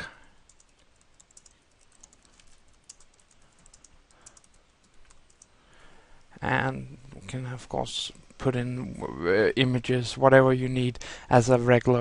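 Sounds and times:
faint keyboard typing: 0.0s - 5.6s.

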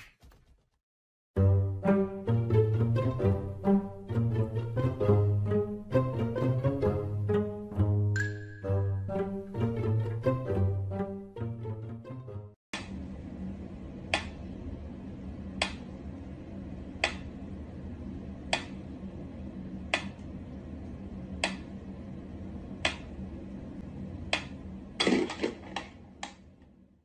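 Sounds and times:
steady low hum: 12.8s - 27.0s.

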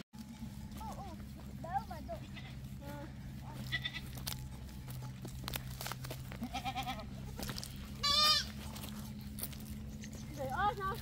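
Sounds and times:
goats bleating: 1.9s - 9.1s.

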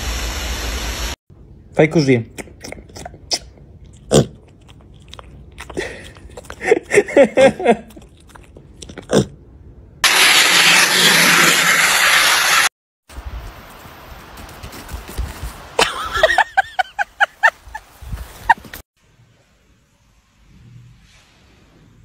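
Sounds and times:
piglet snorting and grunting: 2.3s - 7.0s, 7.6s - 9.4s
man laughing: 5.8s - 8.0s, 15.8s - 18.8s.

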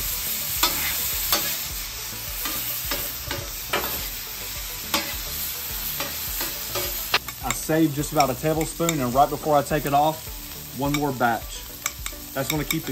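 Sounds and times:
meat sizzling on a griddle: 0.0s - 12.9s
metal spatulas scraping griddle: 0.5s - 1.7s, 2.4s - 4.2s, 4.8s - 9.1s.

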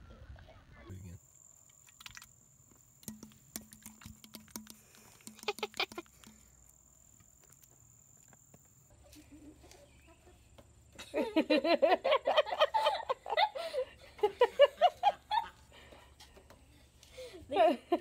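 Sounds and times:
animal drinking wet clicks: 1.7s - 2.4s, 3.0s - 6.8s.

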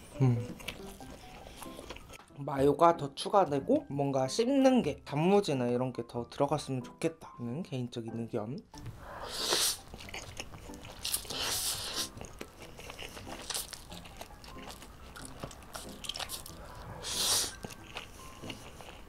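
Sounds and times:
chewing: 0.1s - 2.2s, 9.3s - 19.0s
person slurping noodles: 9.0s - 9.9s, 11.2s - 12.2s, 16.4s - 17.7s.

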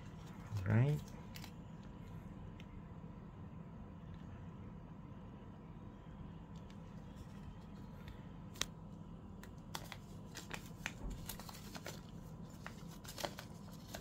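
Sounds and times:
paper rustling: 9.7s - 14.0s.

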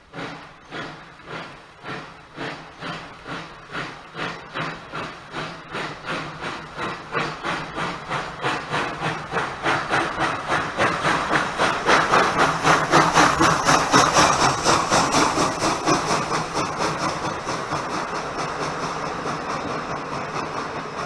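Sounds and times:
steam hissing: 0.0s - 21.0s
steam locomotive exhaust beats: 0.0s - 21.0s
train coaches rolling past: 0.0s - 21.0s.

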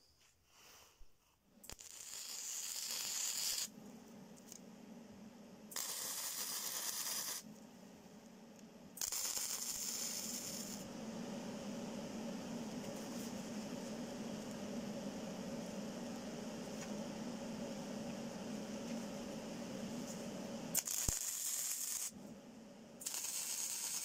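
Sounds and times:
low steady hum: 1.0s - 24.0s
arc welding crackling and sizzling: 1.6s - 3.8s, 5.7s - 7.6s, 9.0s - 11.0s, 11.8s - 22.2s, 23.0s - 24.0s.

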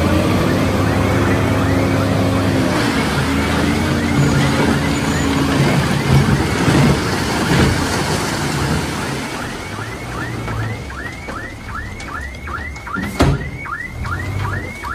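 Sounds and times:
diesel engine running: 0.0s - 14.9s
knocks: 10.2s - 14.9s.

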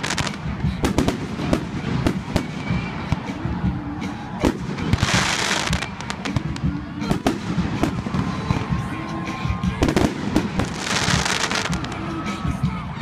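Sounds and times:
fireworks bursting bangs: 0.0s - 12.3s
fireworks hissing: 4.1s - 8.7s, 9.9s - 12.1s.

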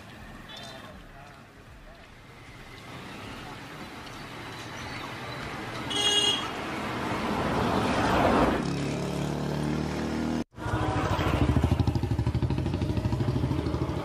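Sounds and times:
motorcycle passing by: 6.7s - 14.0s
motorcycle engine idling: 11.4s - 14.0s.

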